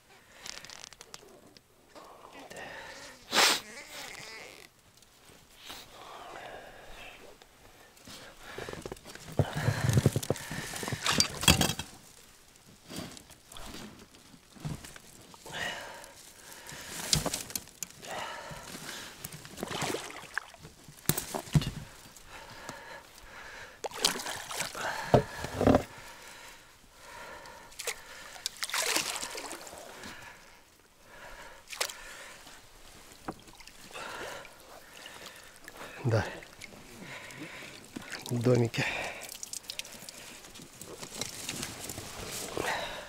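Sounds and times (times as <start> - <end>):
water sloshing and splashing: 18.6 - 22.0, 23.8 - 26.0, 27.8 - 30.2, 32.8 - 42.8.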